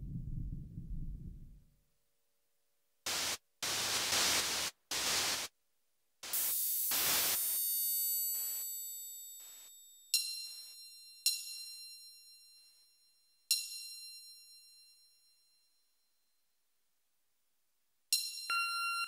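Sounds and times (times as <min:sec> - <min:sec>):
low rumble: 0:00.0 - 0:01.7
bursts of static hiss: 0:03.1 - 0:05.5, 0:06.2 - 0:07.8
bright bell-like strike: 0:08.6 - 0:15.8
ringing metallic sound: 0:08.9 - 0:15.5.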